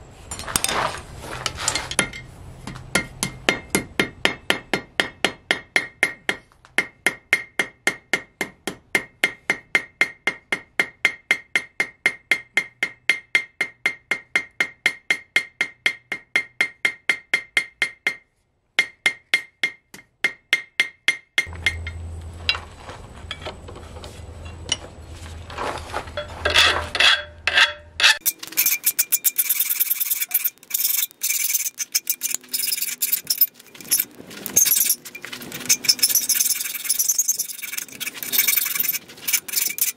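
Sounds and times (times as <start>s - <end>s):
scraping: 0.2s - 2.3s, 21.5s - 39.9s
rough rapid filing strokes: 26.6s - 39.9s.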